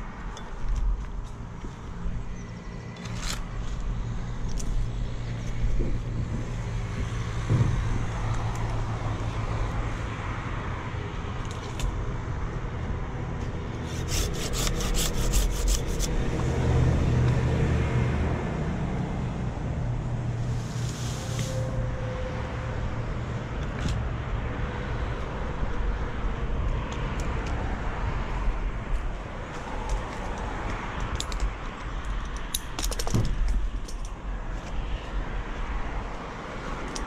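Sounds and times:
pruning saw cutting wood: 13.8s - 16.3s.

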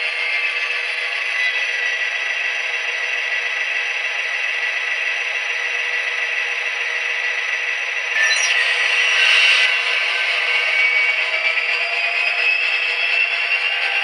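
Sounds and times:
diesel engine sound from small speakers: 0.0s - 14.0s.

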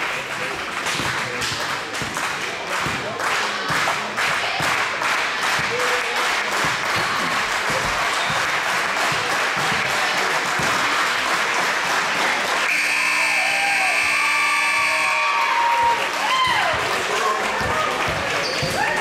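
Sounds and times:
crowd clapping and cheering: 0.0s - 19.0s
scoreboard buzzer horn: 12.6s - 16.2s.

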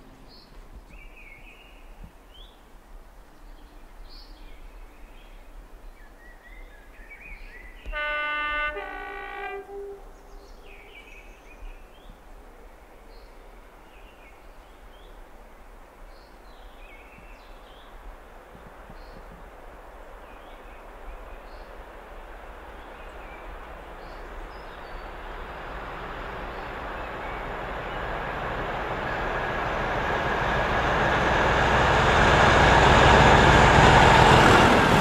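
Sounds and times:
locomotive two-tone horn: 7.9s - 10.2s.

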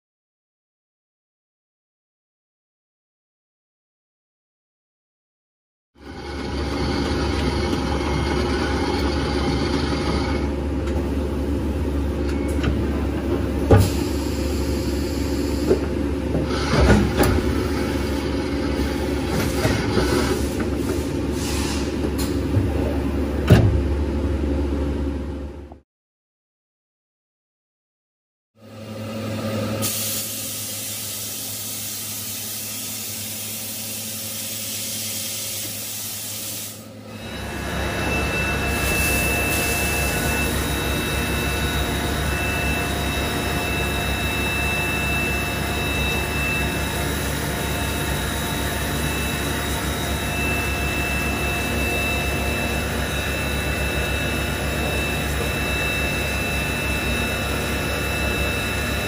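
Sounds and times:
high-pitched machine whine: 6.0s - 23.4s, 28.6s - 59.0s
machine low hum: 36.9s - 59.0s.

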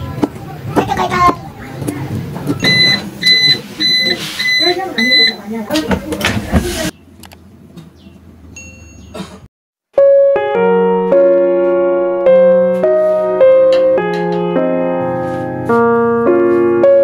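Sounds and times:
electric piano music: 10.0s - 17.0s.

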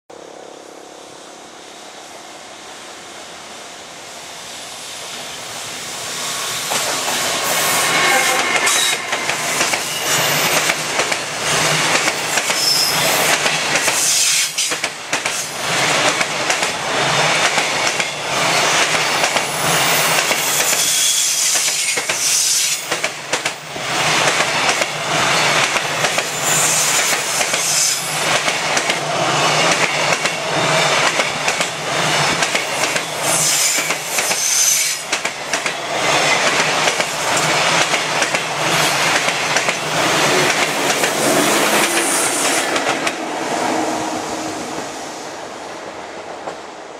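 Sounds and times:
high wheel squeals: 7.4s - 10.9s, 18.5s - 22.8s
train wheels clattering over rail joints: 8.4s - 19.5s, 28.3s - 43.2s.

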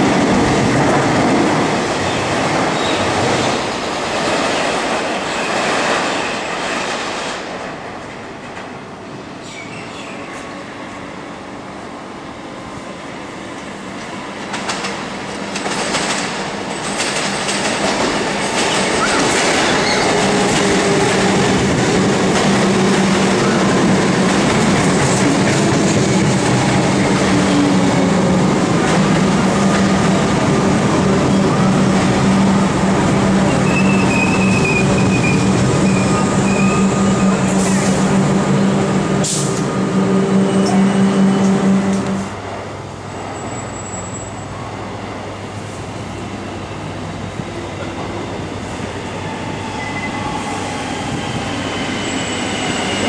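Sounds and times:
train wheels on rail: 0.0s - 53.0s
wheel squeal: 19.0s - 20.2s, 33.5s - 37.3s
train motor hum: 34.8s - 42.4s.

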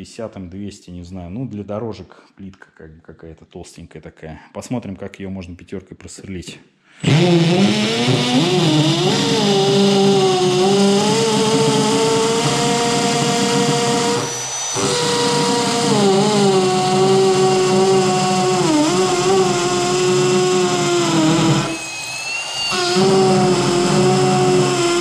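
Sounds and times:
hammer drill into concrete: 7.0s - 25.0s.

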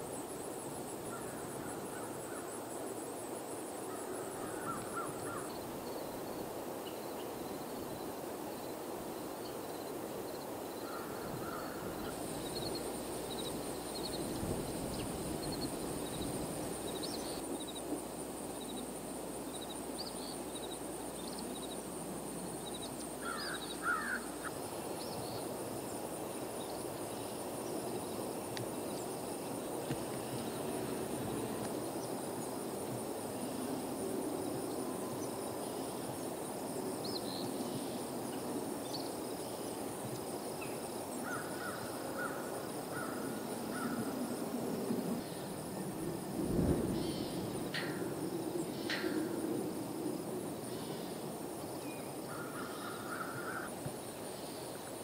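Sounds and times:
crow-like caws: 4.0s - 5.5s, 10.8s - 12.0s, 23.2s - 24.5s, 41.2s - 44.1s, 52.3s - 53.7s
small birds chirping: 11.7s - 17.9s, 18.5s - 21.8s.

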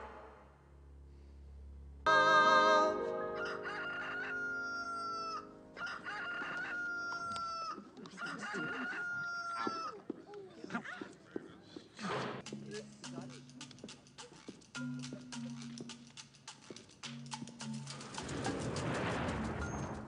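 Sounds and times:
held musical chord: 2.0s - 5.8s
long crowing calls: 2.1s - 10.0s.

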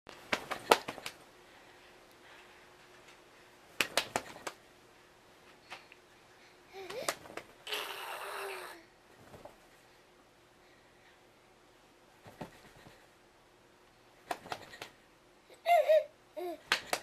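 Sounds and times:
baby cooing: 7.7s - 8.9s
breathy baby vocal sound: 7.7s - 8.9s.

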